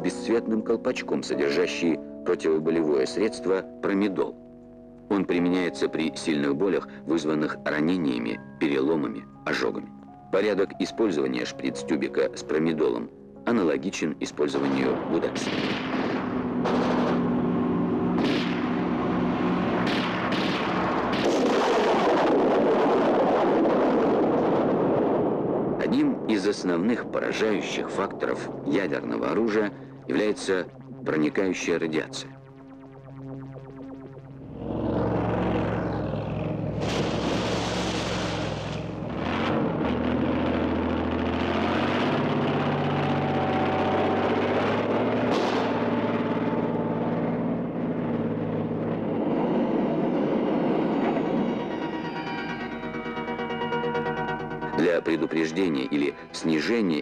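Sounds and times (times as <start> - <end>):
explosion rumble: 14.9 - 25.8, 28.0 - 51.5
sharp gunshots: 15.3 - 17.3, 18.1 - 23.8, 36.7 - 39.1, 45.2 - 46.0
tracked vehicle engine droning: 15.9 - 23.5, 28.5 - 56.8
low steady hum: 26.9 - 56.8
loud rushing hiss: 36.8 - 39.0.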